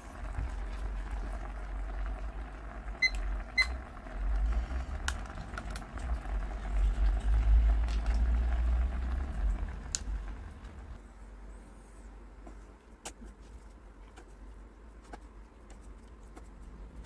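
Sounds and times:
noodles boiling: 0.0 - 17.0
kitchen timer beeps: 3.0 - 3.8.

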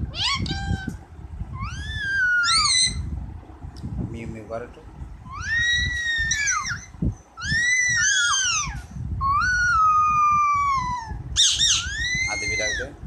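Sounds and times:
parakeet screeching: 0.1 - 0.9, 1.6 - 3.1, 5.3 - 13.0.

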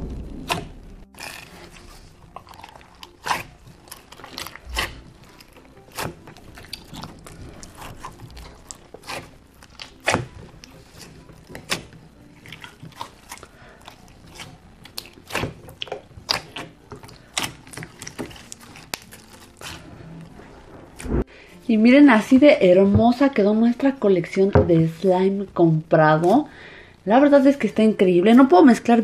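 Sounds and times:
slime squelching: 0.0 - 21.3.

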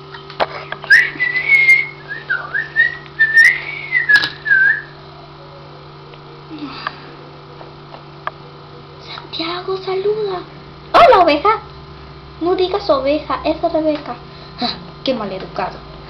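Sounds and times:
person whistling a tune: 0.9 - 4.9.

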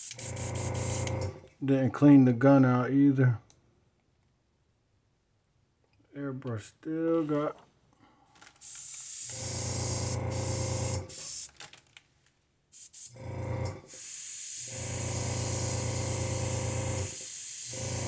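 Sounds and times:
airbrush hissing: 0.0 - 1.2, 8.6 - 11.6, 12.7 - 18.0
air compressor humming: 0.0 - 1.5, 8.6 - 11.6, 12.8 - 18.0.

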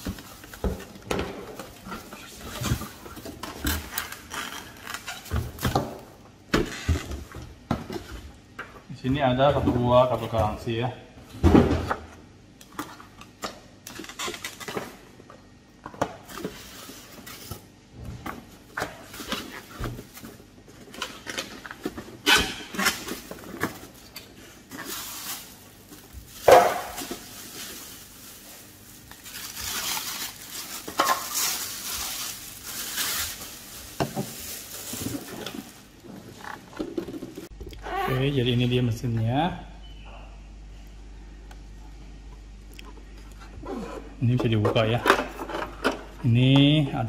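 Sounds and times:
plastic bag rustling: 0.0 - 5.6, 18.4 - 37.5.

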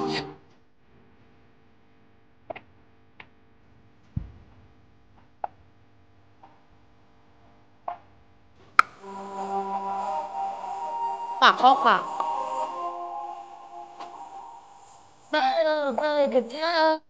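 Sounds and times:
faint steady hum: 0.0 - 17.0
deep thump: 4.1 - 4.8.

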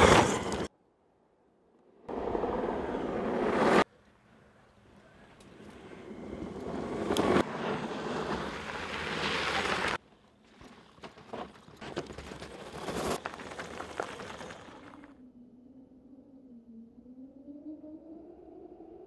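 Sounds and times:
motorcycle tyres crunching over stones: 8.1 - 15.1
knocks and rattles over rocks: 9.8 - 15.1.

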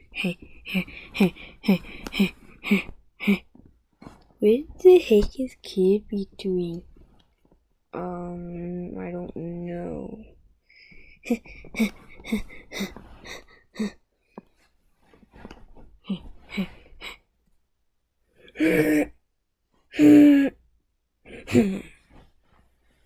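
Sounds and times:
person murmuring: 0.0 - 3.5.

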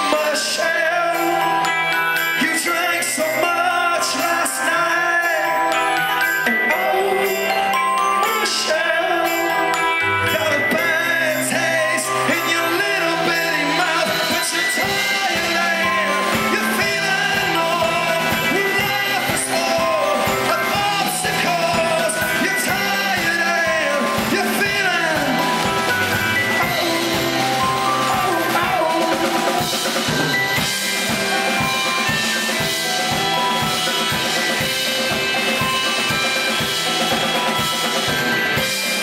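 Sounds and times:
man singing and shouting: 0.0 - 30.6
electric keyboards: 0.0 - 39.0
steady drum beat: 10.5 - 39.0.

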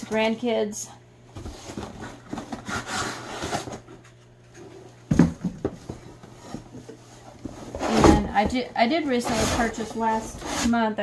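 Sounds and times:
cardboard and packing rustling: 1.4 - 10.8
knocks and scrapes in box: 7.4 - 10.8.

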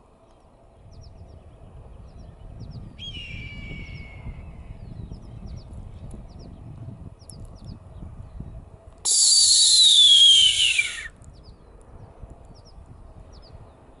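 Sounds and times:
hawk raspy scream: 9.1 - 11.1.

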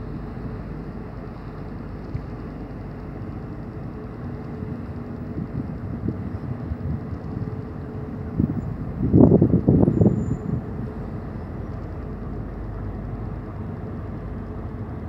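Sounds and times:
diesel engines droning: 0.0 - 15.0
wind buffeting microphone: 3.8 - 12.9.

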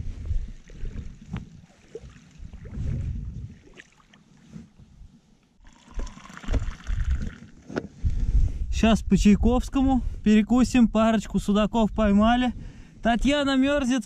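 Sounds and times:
wind buffeting microphone: 0.0 - 3.8, 6.0 - 13.8
hot drink pouring into cup: 5.6 - 7.6.

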